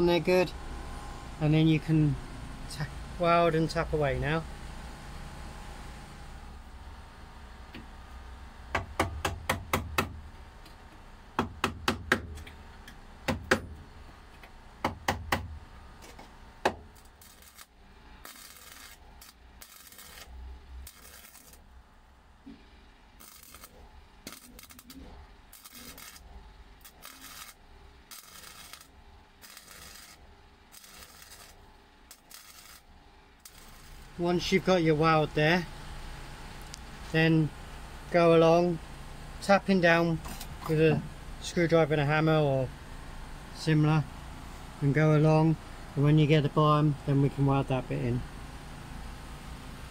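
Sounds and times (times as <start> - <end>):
welder crackling: 15.0 - 21.8, 23.1 - 35.4.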